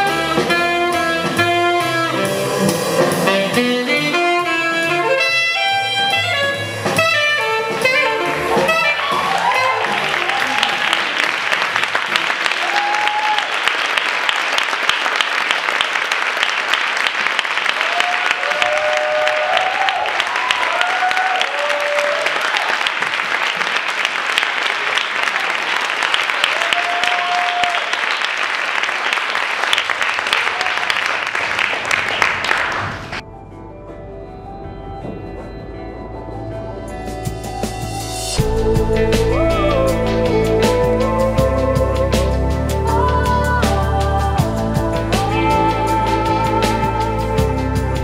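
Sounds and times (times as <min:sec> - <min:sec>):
audience applauding: 0:08.1 - 0:33.2
cheers and whoops: 0:08.6 - 0:11.2, 0:12.4 - 0:13.7, 0:17.7 - 0:22.9, 0:26.3 - 0:28.0, 0:30.3 - 0:31.1.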